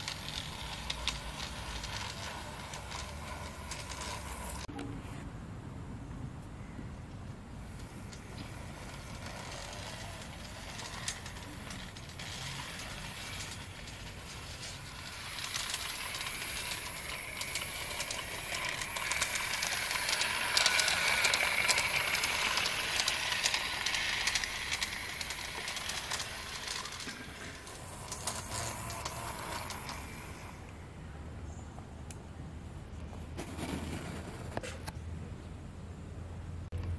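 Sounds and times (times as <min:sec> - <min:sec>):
motor and gears whirring: 0:00.0 - 0:04.7, 0:07.7 - 0:30.7
wheels clicking on rails: 0:00.0 - 0:04.9, 0:07.1 - 0:30.8.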